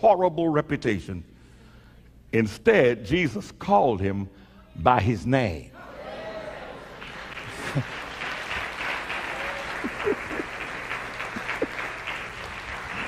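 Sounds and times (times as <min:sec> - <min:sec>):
crowd applauding: 0:06.2 - 0:13.0.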